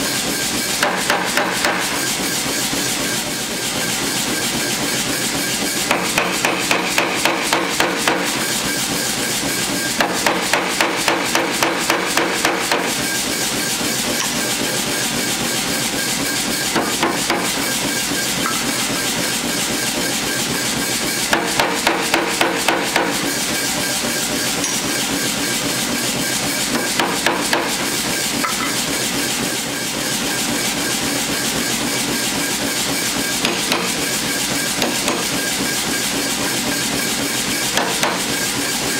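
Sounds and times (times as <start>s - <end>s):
power hammer running noise: 0.0s - 38.9s
power hammer striking steel: 0.7s - 2.2s, 5.6s - 8.8s, 9.5s - 25.8s, 26.4s - 29.3s, 33.1s - 36.8s, 37.5s - 38.7s.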